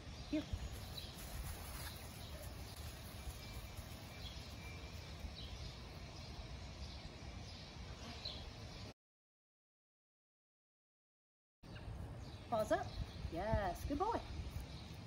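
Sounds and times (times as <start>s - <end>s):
faint bird chirps: 0.0s - 8.9s.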